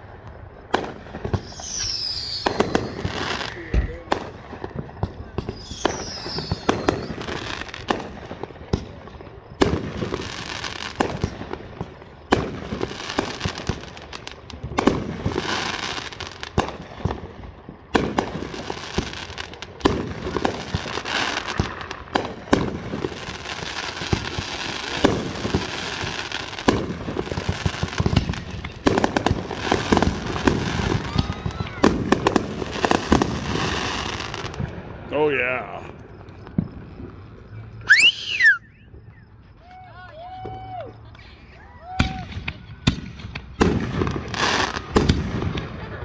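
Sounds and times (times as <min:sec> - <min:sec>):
firework bangs: 0:00.0 - 0:38.6, 0:41.9 - 0:46.0
firework crackling: 0:00.0 - 0:39.0, 0:39.7 - 0:46.0.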